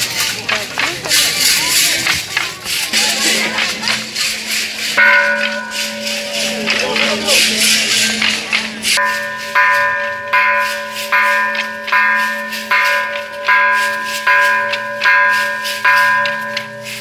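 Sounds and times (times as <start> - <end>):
bell ringing: 3.0 - 17.0.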